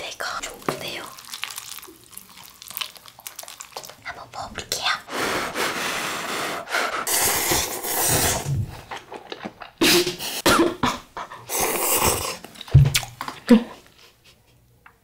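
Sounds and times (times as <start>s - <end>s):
noodles being slurped: 0.6s - 4.0s, 5.1s - 9.8s, 11.5s - 12.6s.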